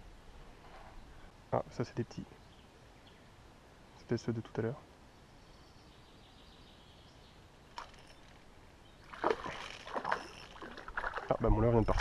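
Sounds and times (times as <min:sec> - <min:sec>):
fish splashing at water surface: 0:09.1 - 0:11.3.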